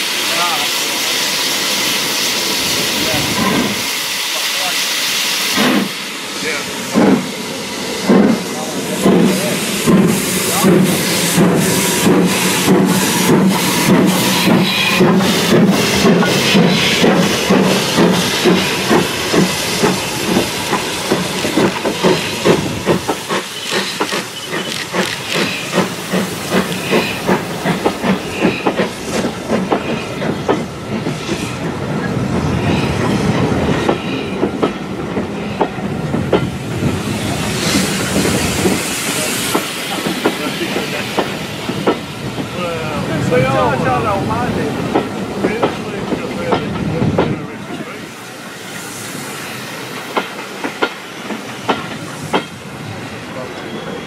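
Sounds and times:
steam locomotive exhaust chuffs: 0:00.0 - 0:42.9
steam hissing: 0:00.0 - 0:54.0
train wheels clicking over rail joints: 0:00.3 - 0:06.0, 0:06.8 - 0:42.6, 0:43.6 - 0:52.8.

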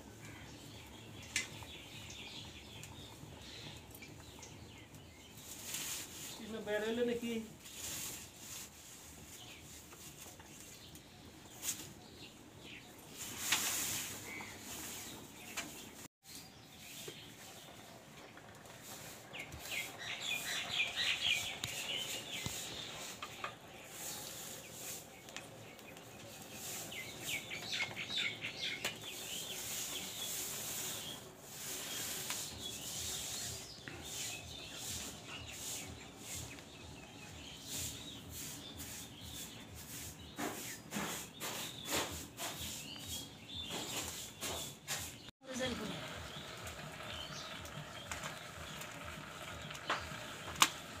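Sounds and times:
birds chirping: 0:00.0 - 0:51.0
straw rustling and crackling: 0:04.0 - 0:51.0
fire clicks and snaps: 0:47.6 - 0:51.0.

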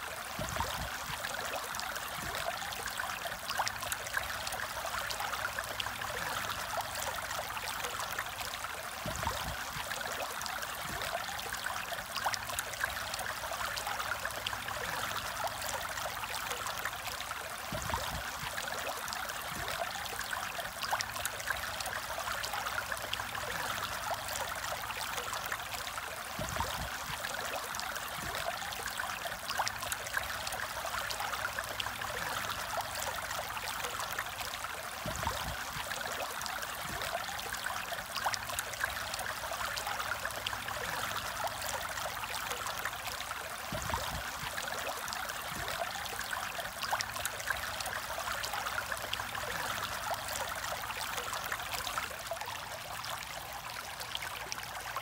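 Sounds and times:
aquarium water trickling and bubbling: 0:00.0 - 0:55.0.

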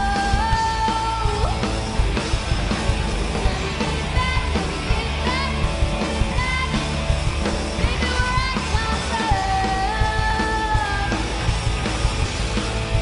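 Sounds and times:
drum kit: 0:00.0 - 0:13.0
electric guitars: 0:00.0 - 0:13.0
lead vocalist singing: 0:07.7 - 0:11.4.

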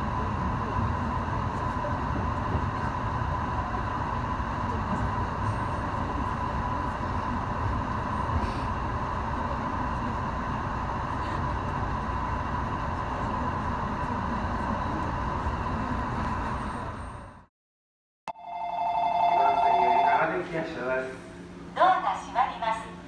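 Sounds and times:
train wheels rumbling on rail: 0:00.0 - 0:17.5
train whine: 0:00.0 - 0:17.5, 0:18.3 - 0:22.2.

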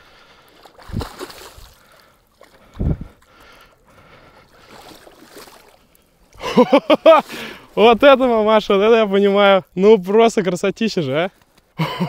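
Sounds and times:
fish thrashing and splashing: 0:00.1 - 0:06.3.

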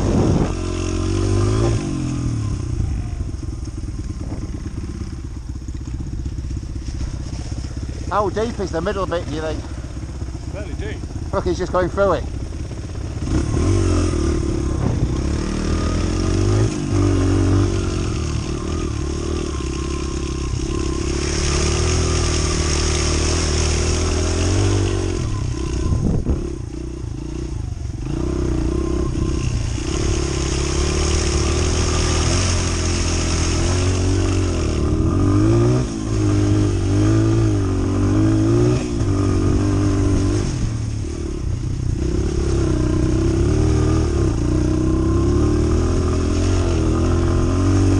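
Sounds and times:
wind on microphone: 0:00.0 - 0:05.1, 0:13.1 - 0:16.5, 0:24.4 - 0:26.8
trail bike engine revving: 0:00.0 - 0:47.9.

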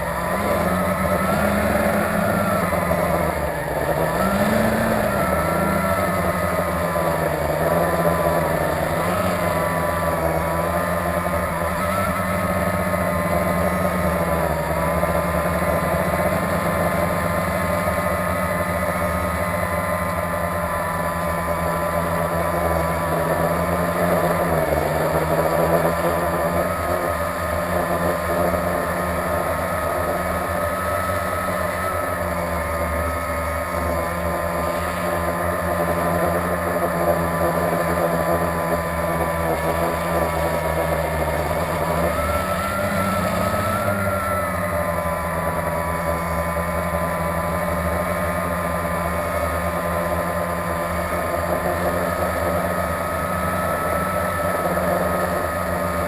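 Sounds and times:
quadcopter propellers buzzing: 0:00.0 - 0:56.0.

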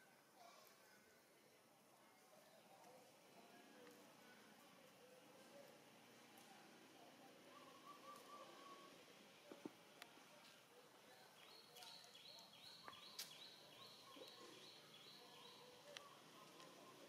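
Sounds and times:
faint high chirping: 0:11.1 - 0:17.0.

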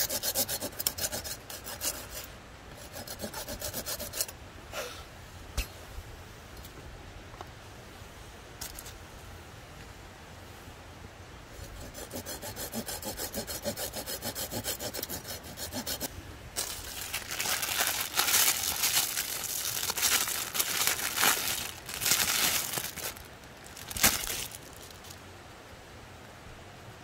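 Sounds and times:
hand saw cutting a branch: 0:00.0 - 0:04.3, 0:11.6 - 0:23.2, 0:23.8 - 0:25.2
branch cracking: 0:16.6 - 0:25.2.

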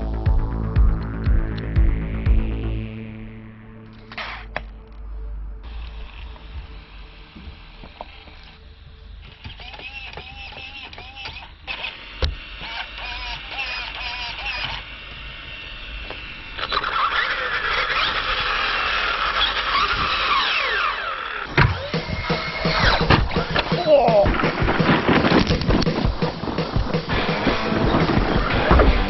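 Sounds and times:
electric motor whine: 0:02.1 - 0:23.8
steering servo whining: 0:03.9 - 0:23.9.

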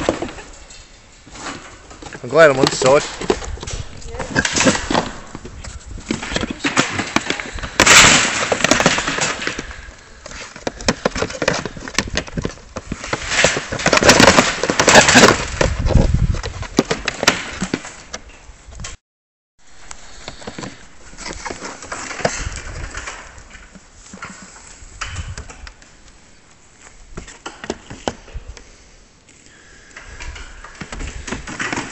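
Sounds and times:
pigs scrambling in wire cage: 0:00.0 - 0:18.1, 0:30.2 - 0:31.9.

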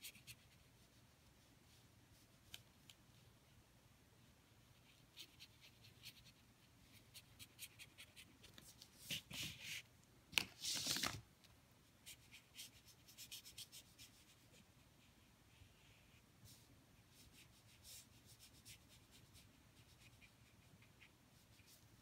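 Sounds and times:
paper rustles: 0:10.4 - 0:11.2
brush scratching on paper: 0:12.0 - 0:22.0.

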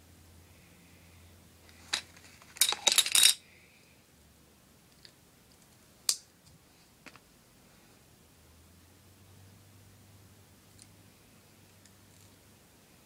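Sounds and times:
small tools clicking and clattering: 0:01.7 - 0:03.4.

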